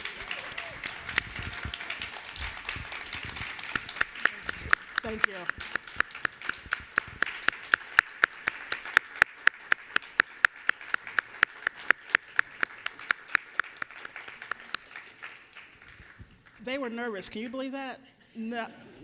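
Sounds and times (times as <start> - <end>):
audience applauding: 0.0 - 16.6
close hands clapping sharply: 0.0 - 16.6.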